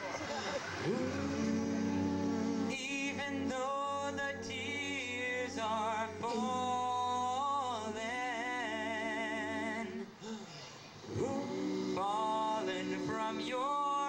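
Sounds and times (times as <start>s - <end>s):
male a cappella group singing: 0.7s - 10.4s, 11.0s - 14.0s.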